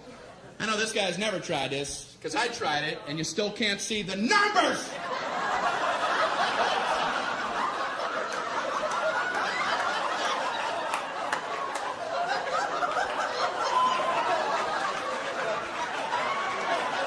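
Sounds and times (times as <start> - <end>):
audience laughing: 4.6 - 17.0
sharp claps: 10.8 - 12.1.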